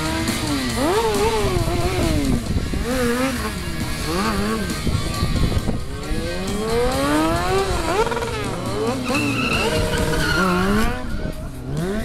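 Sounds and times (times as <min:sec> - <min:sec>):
motorcycle engine revving: 0:00.0 - 0:12.0
tyres skidding on tarmac: 0:08.0 - 0:11.4.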